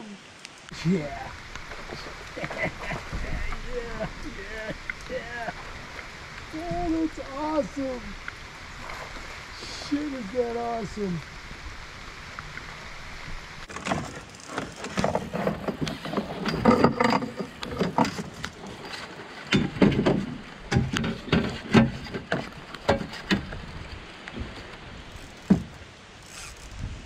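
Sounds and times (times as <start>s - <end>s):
river water rushing: 0.0s - 26.8s
knocks and clatter in a boat: 1.6s - 5.2s, 13.7s - 25.8s.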